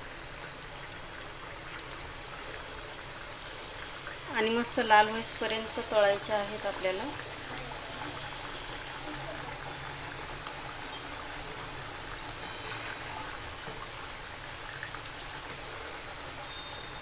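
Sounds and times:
food deep-frying in oil: 0:00.0 - 0:17.0.

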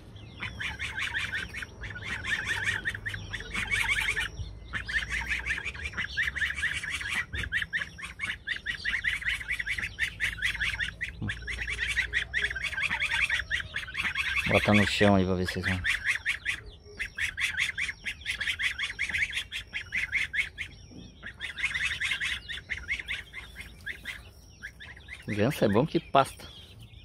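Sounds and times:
goslings peeping: 0:00.0 - 0:27.0.

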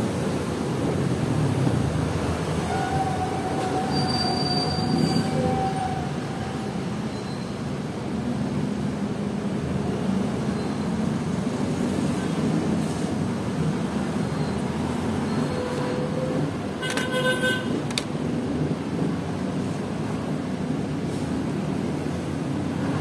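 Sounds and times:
road traffic rumble: 0:00.0 - 0:23.0
vehicle horn toot: 0:16.8 - 0:17.8.

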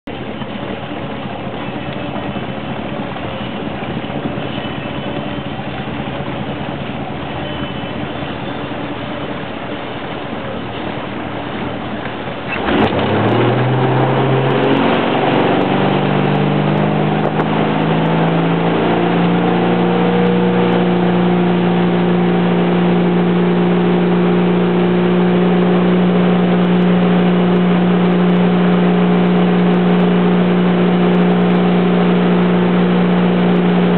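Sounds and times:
boat engine running: 0:00.0 - 0:33.9
rush of boat wake: 0:00.0 - 0:33.9.

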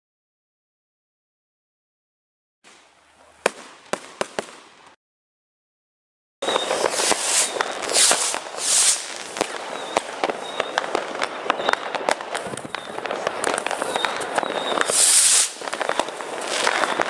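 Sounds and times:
firework bangs: 0:02.6 - 0:05.0, 0:06.4 - 0:17.0
fireworks crackling and popping: 0:02.6 - 0:05.0, 0:06.4 - 0:17.0
firework hissing: 0:06.4 - 0:17.0.

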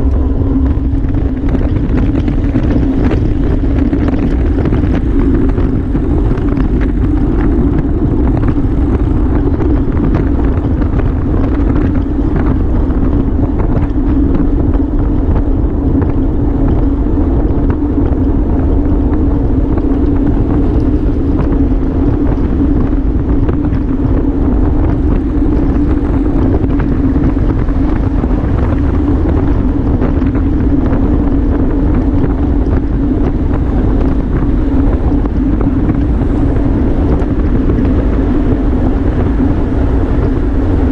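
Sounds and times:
low hum: 0:00.0 - 0:40.9
wind rush over microphone: 0:00.0 - 0:40.9.

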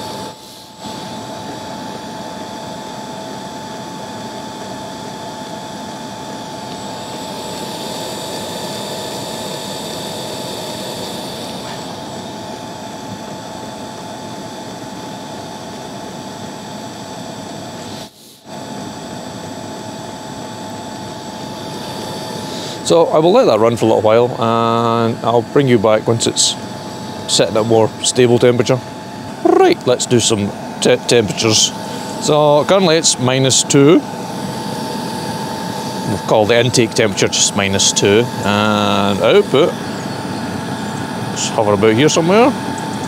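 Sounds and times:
diesel air heater running: 0:00.0 - 0:43.0.

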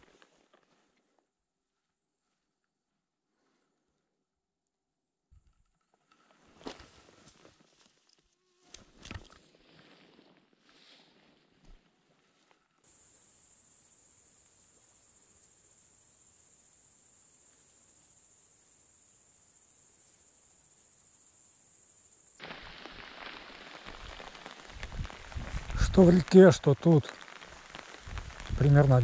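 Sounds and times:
insects chirring: 0:12.8 - 0:29.0
rough pattering noise: 0:22.4 - 0:29.0.

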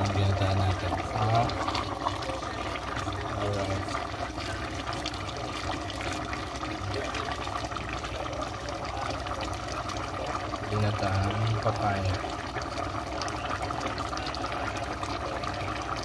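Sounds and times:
pot bubbling and popping: 0:00.0 - 0:16.0.

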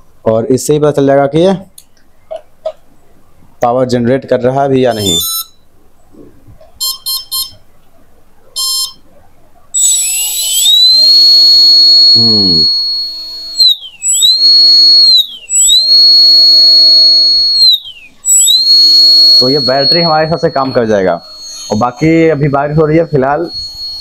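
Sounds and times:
short electronic beeps: 0:04.9 - 0:05.7, 0:06.8 - 0:07.6, 0:08.6 - 0:09.0, 0:09.8 - 0:24.0
drone motor whine: 0:09.8 - 0:24.0.

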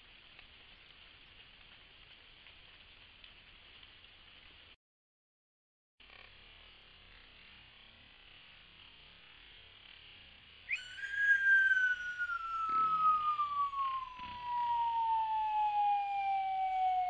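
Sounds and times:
siren-like whistling tone: 0:10.7 - 0:17.0.

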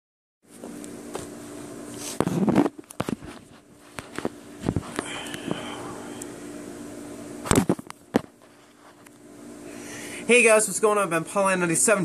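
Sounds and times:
faint steady hum: 0:00.5 - 0:12.0.

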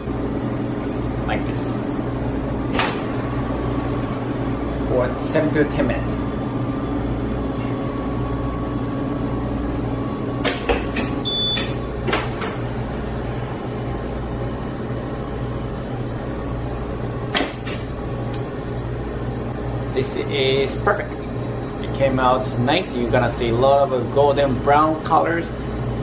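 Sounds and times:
oven and ventilation hum: 0:00.0 - 0:26.0
oven door shutting: 0:02.7 - 0:03.2.

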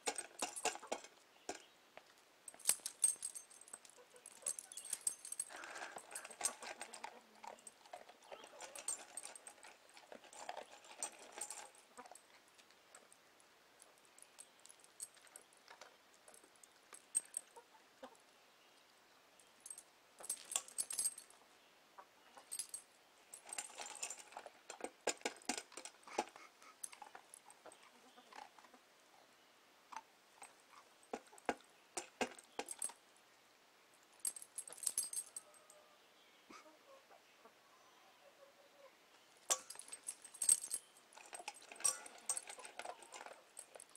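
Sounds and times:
kibble clinking on metal bowl: 0:02.5 - 0:12.3, 0:23.4 - 0:28.4, 0:39.5 - 0:43.9.

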